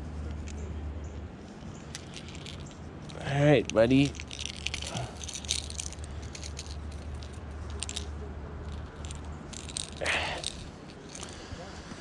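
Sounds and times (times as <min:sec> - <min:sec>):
plastic lure clicking and rattling: 0:01.6 - 0:08.1, 0:08.7 - 0:11.4.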